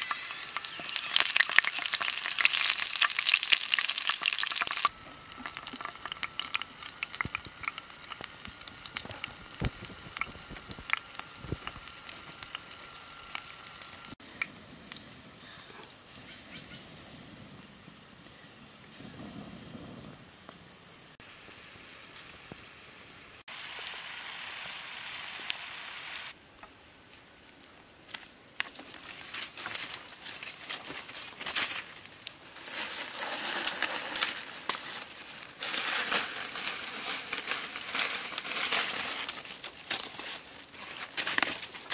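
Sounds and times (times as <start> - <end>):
water sizzling and popping: 0.0 - 15.4, 17.3 - 26.4, 28.1 - 41.9
wood fire crackling: 0.0 - 25.6, 27.4 - 41.9
rustling: 27.5 - 41.9.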